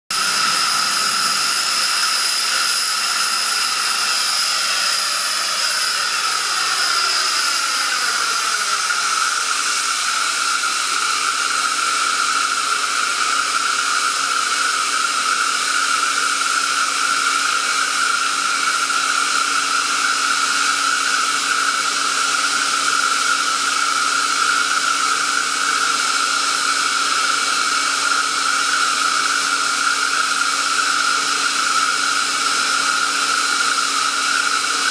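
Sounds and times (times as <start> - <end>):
air compressor running with whine: 0.1 - 34.9.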